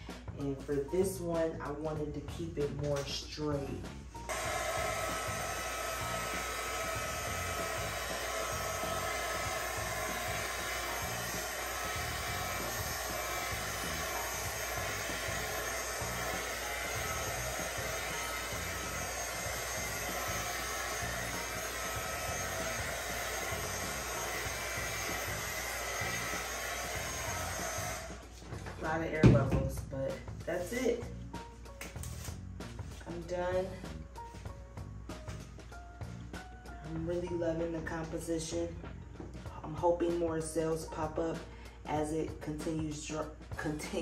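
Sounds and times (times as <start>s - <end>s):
heat gun blowing air: 4.3s - 28.3s.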